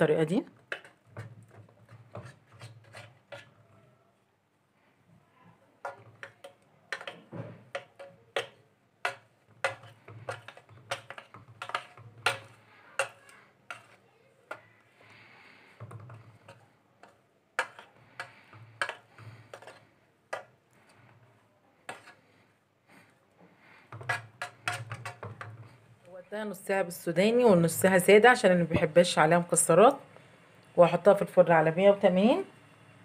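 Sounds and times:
scraper scraping pan: 0:00.7 - 0:03.8, 0:05.9 - 0:14.7, 0:15.7 - 0:21.1, 0:21.9 - 0:22.3
dough scraper tapping batter in pan: 0:05.8 - 0:14.7, 0:15.8 - 0:20.5, 0:23.9 - 0:25.6.

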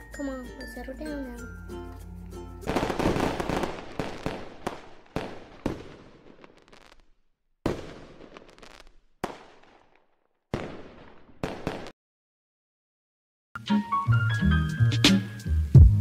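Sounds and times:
fireworks exploding with crackle: 0:02.6 - 0:12.0.

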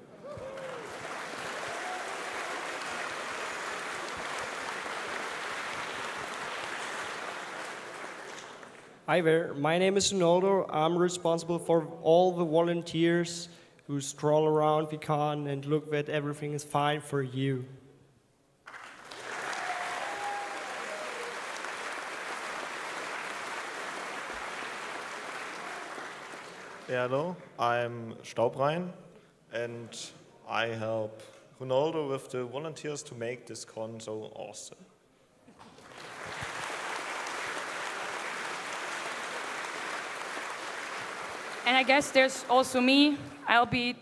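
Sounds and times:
crowd applauding: 0:00.0 - 0:09.0, 0:18.7 - 0:26.9, 0:35.6 - 0:42.5.

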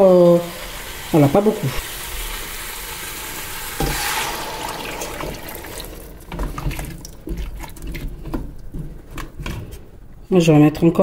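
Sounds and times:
hot pan hissing: 0:00.0 - 0:06.4
water pouring into pot: 0:00.0 - 0:08.1.

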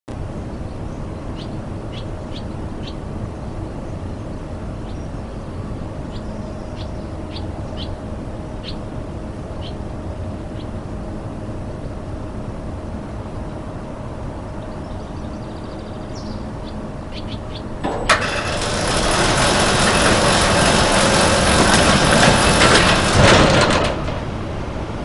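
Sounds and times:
low background rumble: 0:00.2 - 0:25.0
swallows chirping: 0:06.1 - 0:08.0, 0:08.6 - 0:08.8, 0:14.6 - 0:17.7.

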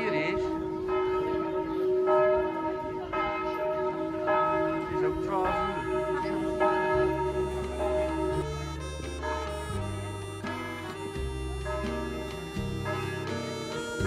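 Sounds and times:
church bell ringing: 0:00.0 - 0:09.5, 0:11.6 - 0:13.8
music: 0:05.6 - 0:14.0.

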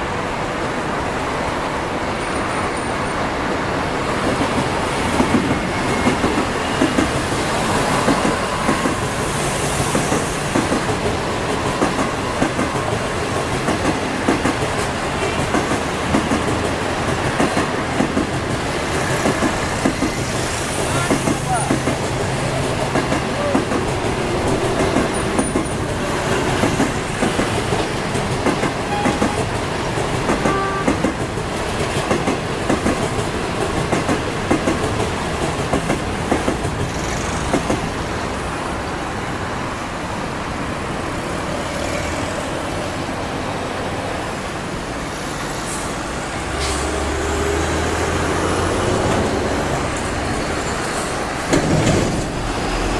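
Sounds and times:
train wheels clattering over rail joints: 0:09.7 - 0:38.0, 0:46.6 - 0:52.9.

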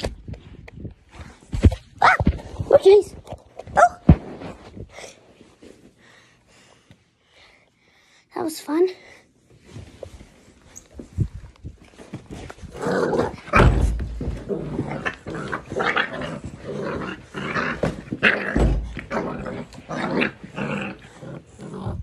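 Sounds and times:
puppy growling: 0:12.6 - 0:22.0.

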